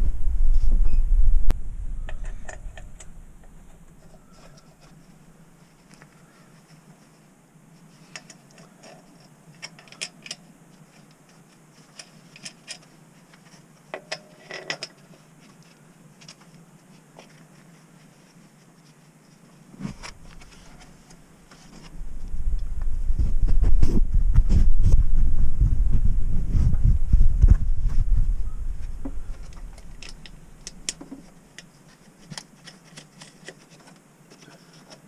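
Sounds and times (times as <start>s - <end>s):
loud low rumble: 0.0s - 3.7s, 21.9s - 30.7s.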